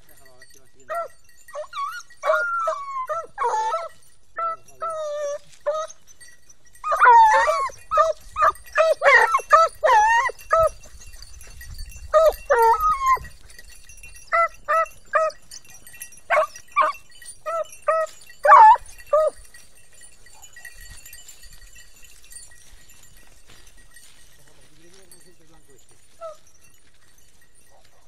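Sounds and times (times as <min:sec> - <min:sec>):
hounds baying: 0:00.0 - 0:28.0
hounds yelping: 0:00.7 - 0:27.4.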